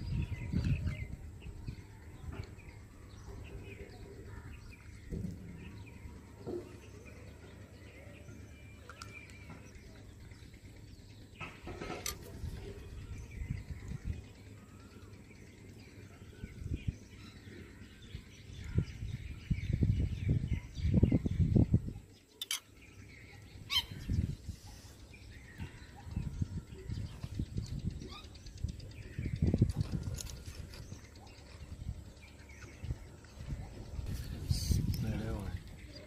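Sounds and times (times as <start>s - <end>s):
low rumbling outdoor noise: 0.0s - 36.0s
bird chirps: 22.2s - 36.0s.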